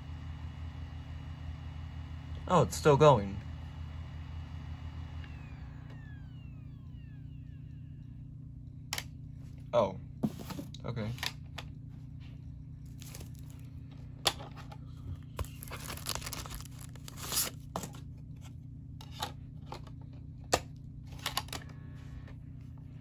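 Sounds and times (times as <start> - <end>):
steady low hum: 0.0 - 23.0
paper sleeve rustling: 12.9 - 13.7, 15.2 - 18.0.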